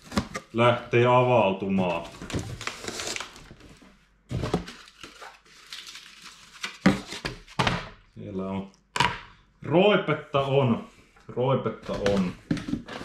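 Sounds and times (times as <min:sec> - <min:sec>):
cardboard rustling and scraping: 0:01.6 - 0:05.7, 0:11.9 - 0:13.0.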